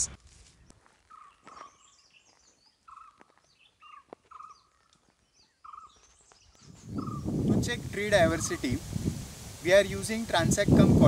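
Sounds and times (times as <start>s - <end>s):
whistled birdsong notes: 0.6s - 7.5s
higher bird chirps: 1.1s - 7.5s.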